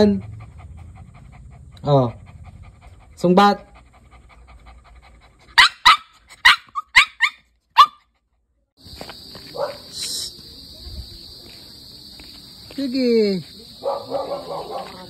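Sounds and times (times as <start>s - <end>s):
dog barking: 5.6s - 8.1s, 9.5s - 10.0s, 13.8s - 15.0s.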